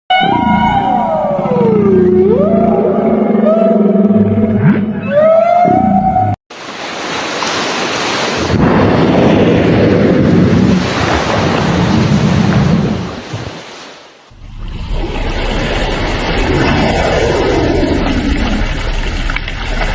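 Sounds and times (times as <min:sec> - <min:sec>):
whale song moaning calls: 0:00.1 - 0:06.4
sea water rushing: 0:06.5 - 0:19.9
wind noise: 0:08.0 - 0:13.8.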